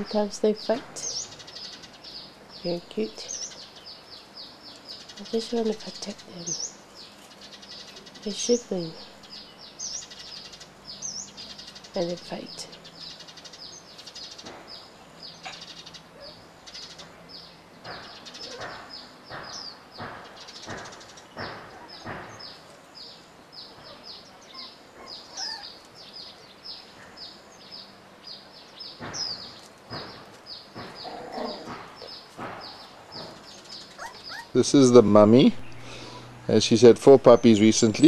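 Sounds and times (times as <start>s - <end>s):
high chirping calls: 0.0s - 38.0s
puppies squealing and whimpering: 23.8s - 25.9s, 30.9s - 32.1s, 33.8s - 34.8s.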